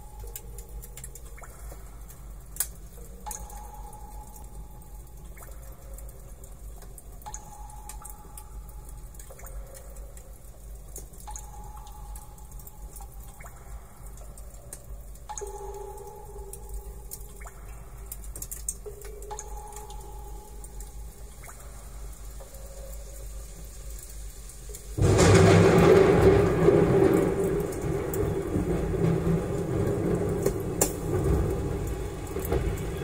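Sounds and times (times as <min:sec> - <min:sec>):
steady low rumble: 0:25.0 - 0:33.0.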